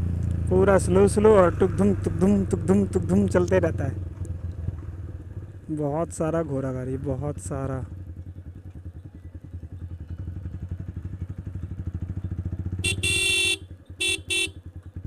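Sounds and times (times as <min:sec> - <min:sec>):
motorcycle engine idling: 0:00.0 - 0:15.0
vehicle horn: 0:12.8 - 0:14.6.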